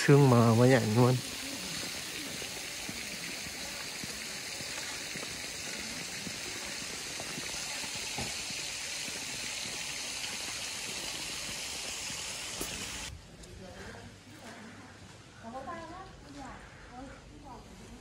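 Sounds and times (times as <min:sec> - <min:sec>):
flowing water rushing: 0:00.0 - 0:13.1.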